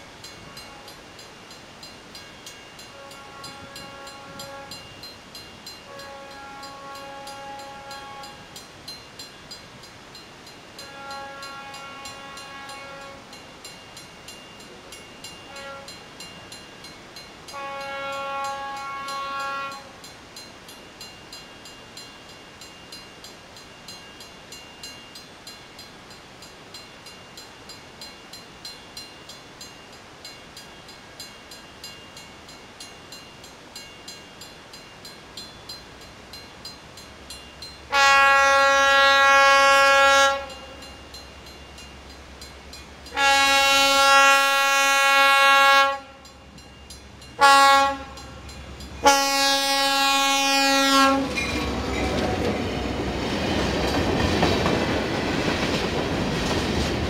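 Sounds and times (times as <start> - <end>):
locomotive horn blasts: 0.4 - 1.0, 2.8 - 5.1, 5.8 - 8.6, 10.8 - 13.4, 15.4 - 16.2, 17.5 - 20.0, 37.9 - 41.0, 43.1 - 46.5, 47.4 - 52.5.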